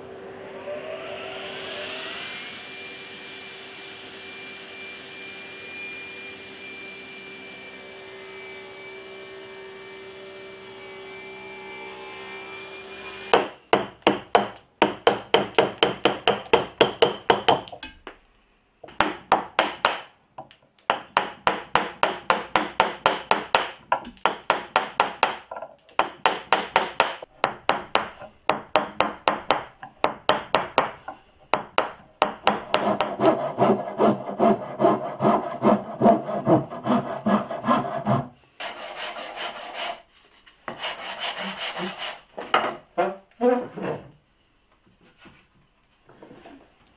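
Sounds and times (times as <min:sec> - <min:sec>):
hand tools scraping wood: 0:29.2 - 0:44.1.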